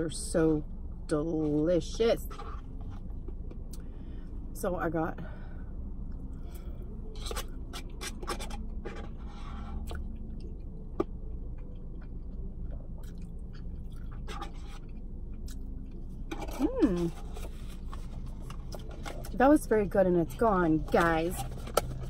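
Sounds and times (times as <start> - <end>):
steady low rumble: 0.0 - 22.0
person chewing: 9.7 - 19.3.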